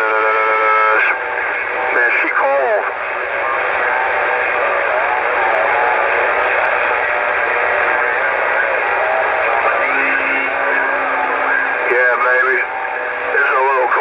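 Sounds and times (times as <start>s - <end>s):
radio static: 0.0s - 14.0s.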